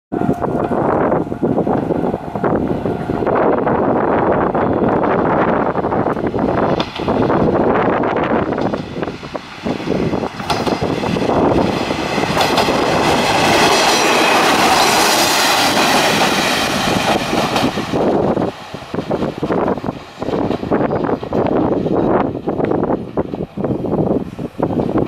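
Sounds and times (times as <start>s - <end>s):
diesel railcar passing: 0.1s - 25.0s
wind buffeting microphone: 0.1s - 25.0s
wheels clicking over rail joints: 8.2s - 25.0s.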